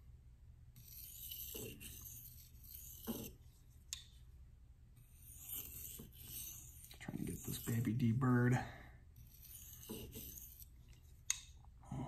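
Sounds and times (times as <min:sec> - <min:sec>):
knife scraping on whetstone: 0:00.8 - 0:03.5, 0:05.0 - 0:08.0, 0:09.2 - 0:11.0.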